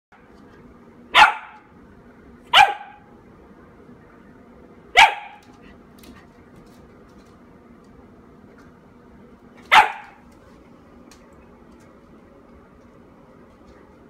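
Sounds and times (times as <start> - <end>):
puppy barking: 1.1 - 1.7, 2.5 - 3.1, 4.9 - 5.5, 9.6 - 10.2.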